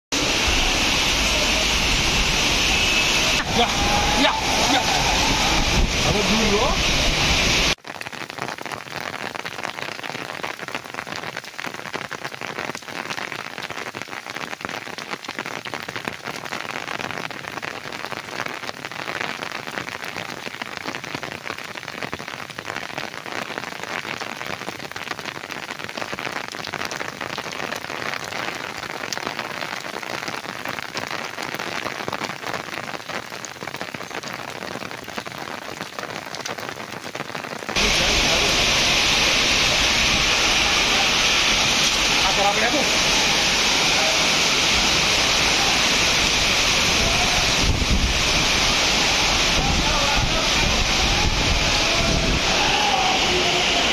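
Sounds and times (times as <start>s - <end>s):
heavy rain pouring: 0.1s - 53.9s.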